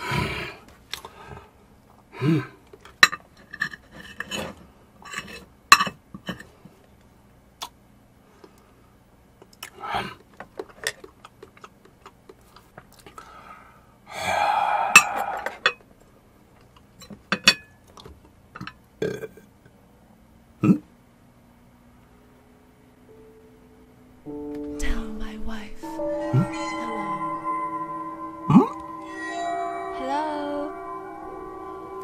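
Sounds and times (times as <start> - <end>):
mouth noise: 14.1 - 15.7.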